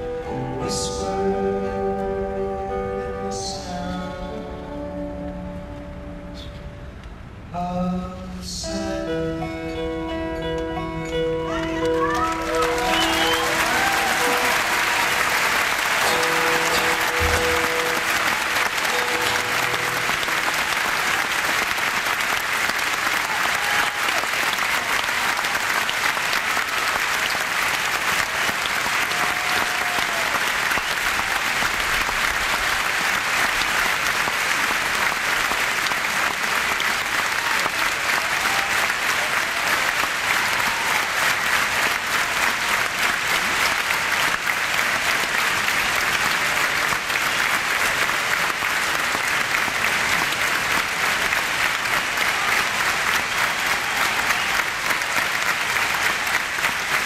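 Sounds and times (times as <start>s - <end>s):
faint cheers: 11.5s - 21.4s, 23.0s - 27.3s, 28.2s - 31.7s, 37.2s - 41.5s
crowd applauding: 11.5s - 57.0s.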